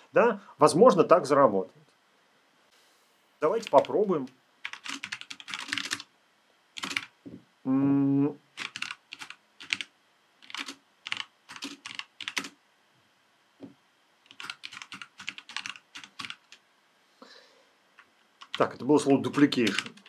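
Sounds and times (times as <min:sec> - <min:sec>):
keyboard typing: 0:03.5 - 0:04.0, 0:04.6 - 0:06.1, 0:06.8 - 0:07.1, 0:08.6 - 0:12.6, 0:14.3 - 0:16.6, 0:18.4 - 0:20.0
voice humming: 0:07.6 - 0:08.4.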